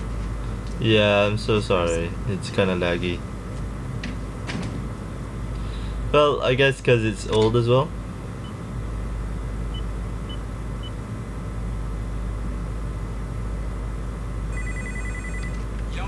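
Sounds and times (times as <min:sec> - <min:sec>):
steady low hum: 0:00.0 - 0:16.0
telephone ringing electronic trill: 0:14.5 - 0:15.6.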